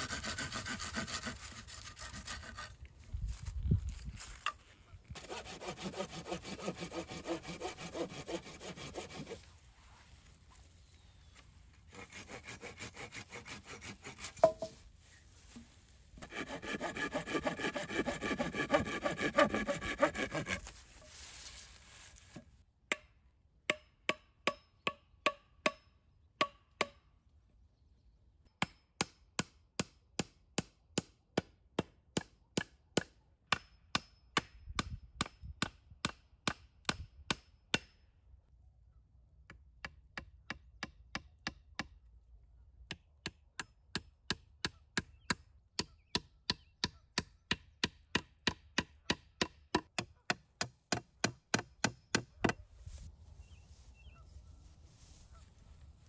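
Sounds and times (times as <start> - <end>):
hand saw cutting wood: 0.0 - 2.8, 5.1 - 9.5, 11.9 - 14.7, 16.2 - 20.9
hatchet striking stick: 12.9 - 14.8, 22.9 - 27.0, 45.8 - 52.6.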